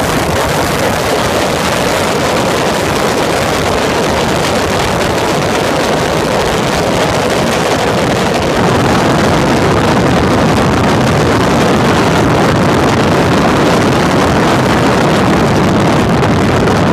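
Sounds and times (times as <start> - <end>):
race car engine running: 0.0 - 16.9
wind buffeting microphone: 0.0 - 16.9.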